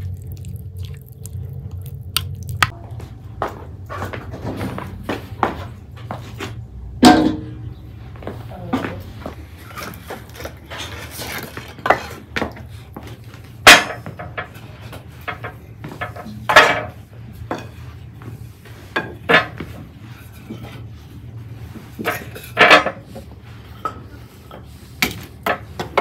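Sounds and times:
utensils and dishes clattering: 7.0 - 7.8, 9.5 - 21.1, 21.8 - 26.0.

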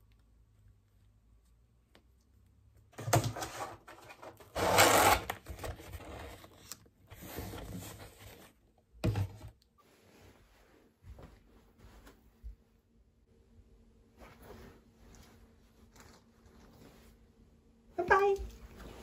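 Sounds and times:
cardboard rubbing and scraping: 3.4 - 6.6.

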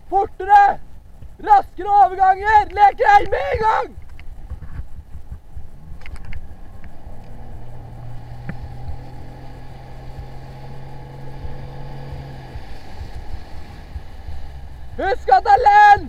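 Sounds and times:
wind rumbling on microphone: 0.0 - 16.0
outboard motor running: 4.1 - 15.9.

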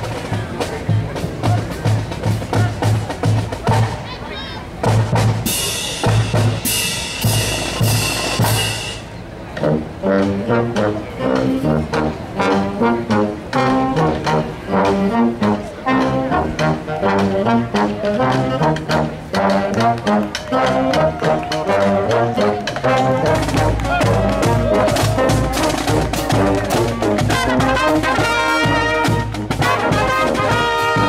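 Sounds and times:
drum cadence: 4.8 - 9.1
brass playing a march tune: 4.8 - 31.0.

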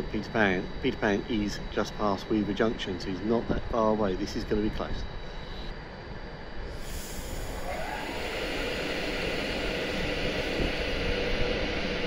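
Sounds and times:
faint train whine: 0.0 - 12.0
electric train pulling out: 6.6 - 12.0.

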